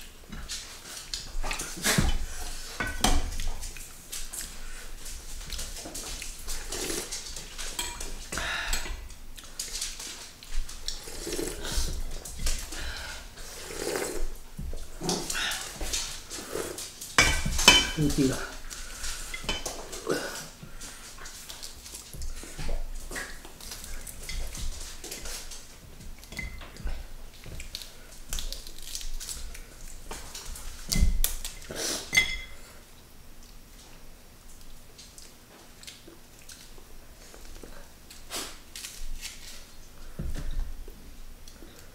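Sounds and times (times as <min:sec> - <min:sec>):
chewing and sipping: 0:00.0 - 0:17.2, 0:18.3 - 0:32.1, 0:32.8 - 0:40.1
dishes clinking: 0:17.2 - 0:18.4, 0:19.3 - 0:20.0, 0:26.3 - 0:26.9, 0:32.1 - 0:32.6
spoon clinking and scraping bowls: 0:19.2 - 0:19.8, 0:26.3 - 0:26.8, 0:32.1 - 0:32.6
dishes and cutlery clicking: 0:26.2 - 0:26.8, 0:32.1 - 0:32.6
hands handling lettuce leaves: 0:27.3 - 0:31.6, 0:35.0 - 0:40.1.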